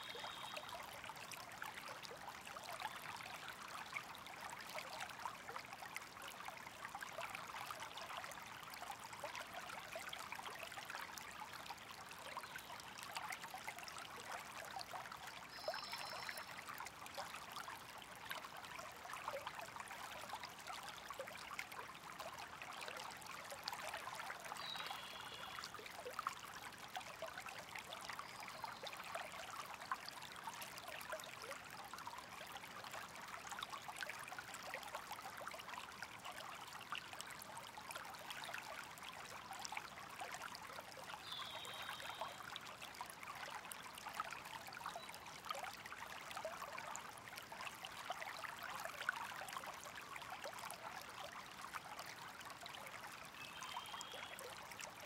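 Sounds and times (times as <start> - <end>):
water trickling: 0.0 - 55.0
faint high chirps: 15.6 - 16.5.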